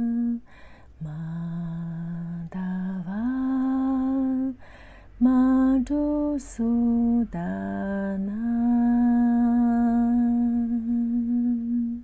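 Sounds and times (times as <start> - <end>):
woman singing long-held notes: 0.0 - 12.0
woman breathing in: 0.4 - 1.0, 4.6 - 5.2.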